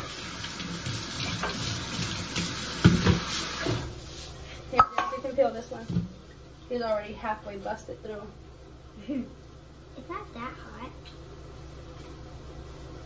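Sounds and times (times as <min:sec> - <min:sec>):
tap running into colander: 0:00.0 - 0:03.9.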